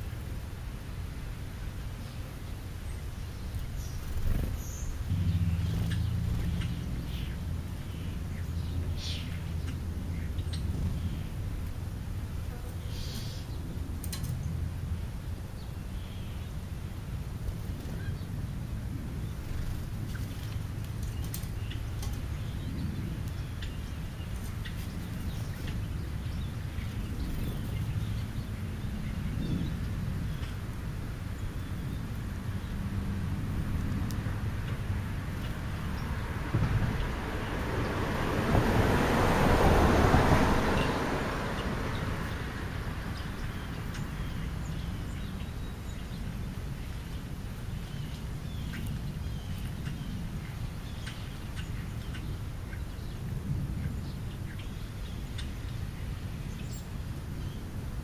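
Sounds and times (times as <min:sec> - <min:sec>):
steady low hum: 0:00.0 - 0:37.9
small birds chirping: 0:00.0 - 0:38.0, 0:40.3 - 0:58.0
bird chirps: 0:02.9 - 0:11.4.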